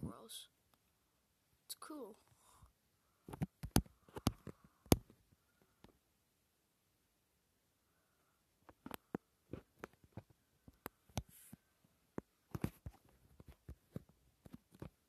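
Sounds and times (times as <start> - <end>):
fingers tapping on a phone: 3.3 - 5.1.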